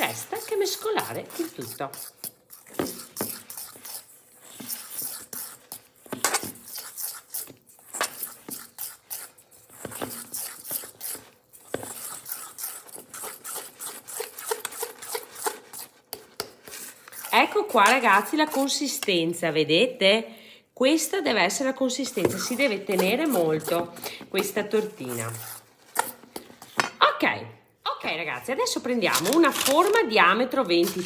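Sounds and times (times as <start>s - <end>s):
fork scraping a metal bowl: 0.0s - 16.0s, 16.6s - 19.1s, 22.0s - 26.8s.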